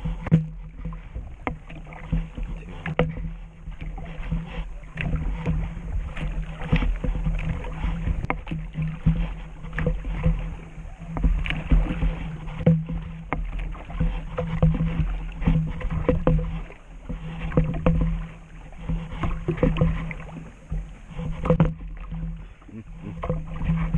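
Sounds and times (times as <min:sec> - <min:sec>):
knocks and splashes: 0:00.0 - 0:23.9
water slapping against kayak hull: 0:00.0 - 0:23.9
steady low rumble: 0:15.0 - 0:23.9.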